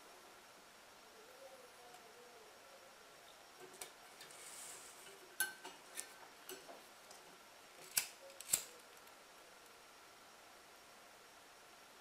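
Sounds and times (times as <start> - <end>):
lighter clicking: 7.9 - 8.8.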